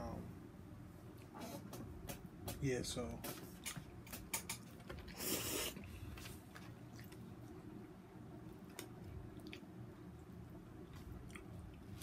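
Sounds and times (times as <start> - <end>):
wet chewing sounds: 3.5 - 12.0
person slurping spaghetti: 5.1 - 5.9.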